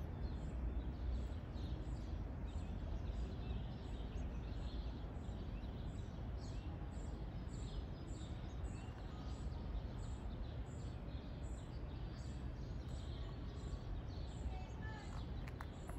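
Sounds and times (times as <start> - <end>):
songbirds chirping: 0.0 - 15.9.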